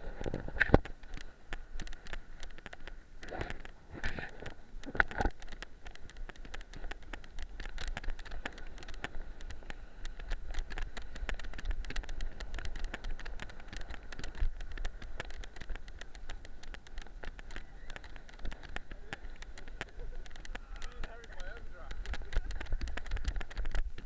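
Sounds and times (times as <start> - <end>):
dog paws on shingle: 0.8 - 24.0
wind buffeting microphone: 10.1 - 24.0.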